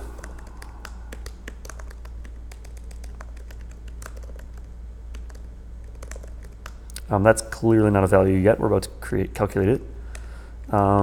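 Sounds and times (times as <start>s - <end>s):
computer keyboard typing: 0.0s - 7.0s
low steady hum: 0.0s - 11.0s.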